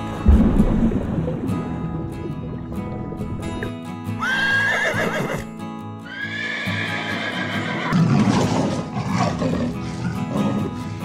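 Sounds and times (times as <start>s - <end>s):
rough low sound: 0.0s - 3.9s
background music: 0.0s - 11.0s
horse whinnying: 4.2s - 10.6s.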